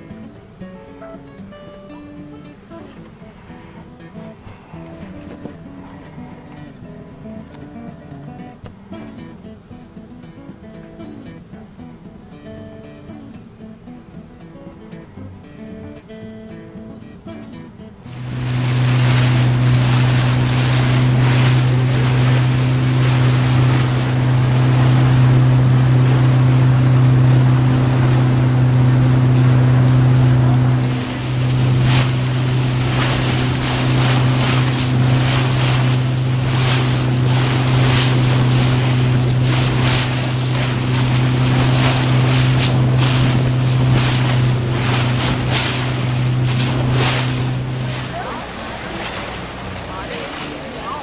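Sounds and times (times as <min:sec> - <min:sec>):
water splashing against hull: 0:02.6 - 0:08.8, 0:18.0 - 0:51.0
outboard motor humming: 0:03.0 - 0:08.9, 0:17.9 - 0:51.0
wind buffeting microphone: 0:18.1 - 0:51.0.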